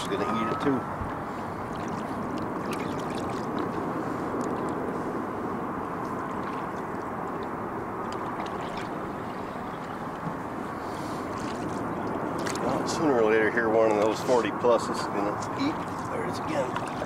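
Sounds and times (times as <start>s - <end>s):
water gurgling against boat hull: 0.0s - 4.9s
small splashes and drips: 1.6s - 4.8s, 5.9s - 10.3s, 11.3s - 13.0s, 15.5s - 17.0s.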